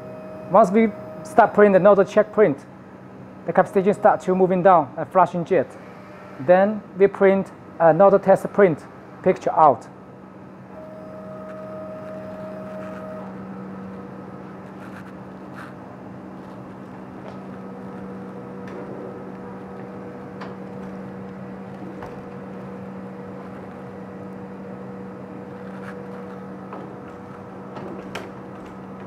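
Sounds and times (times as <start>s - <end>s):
faint motor whines: 0.0s - 4.8s, 5.4s - 7.7s, 10.0s - 29.0s
printer machine hum: 0.0s - 9.2s, 10.0s - 29.0s.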